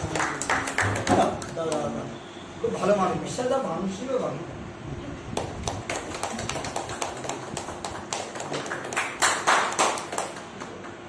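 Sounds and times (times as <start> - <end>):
people clapping: 0.0 - 2.0, 5.4 - 11.0.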